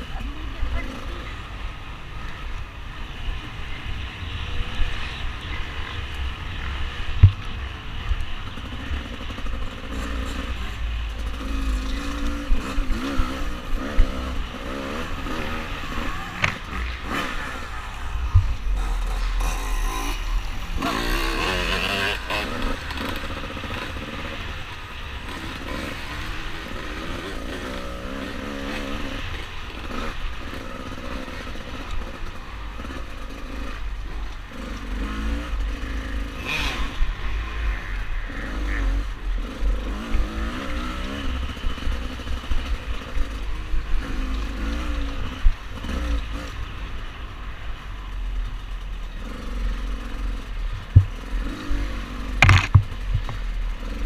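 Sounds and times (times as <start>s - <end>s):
dirt bike engine revving: 8.6s - 33.8s, 34.5s - 46.6s, 49.2s - 54.0s
heavy low rumble: 16.4s - 21.5s
bike rattling: 48.4s - 54.0s
sharp knocks: 52.4s - 53.4s.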